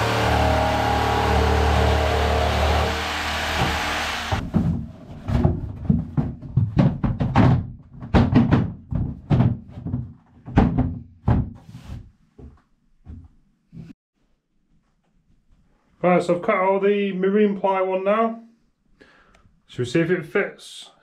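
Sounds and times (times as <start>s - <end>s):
jigsaw cutting a board: 0.0s - 4.4s
board knocking into a wooden frame: 4.4s - 11.6s.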